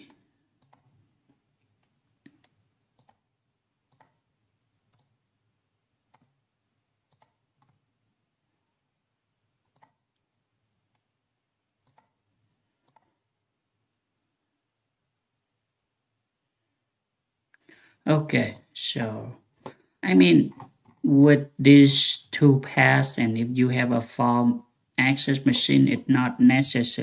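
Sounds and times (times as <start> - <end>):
computer mouse clicks: 0.0 - 1.0, 1.7 - 3.3, 3.9 - 4.2, 4.8 - 5.2, 6.1 - 6.4, 7.1 - 7.8, 9.6 - 10.2, 11.8 - 12.2, 12.8 - 13.2, 20.5 - 21.0.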